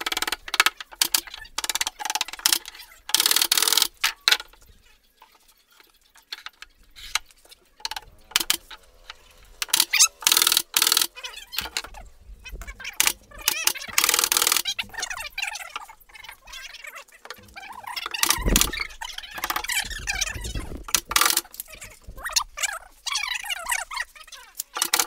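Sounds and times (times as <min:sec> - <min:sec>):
wooden knocks and rattles: 0:06.2 - 0:25.0.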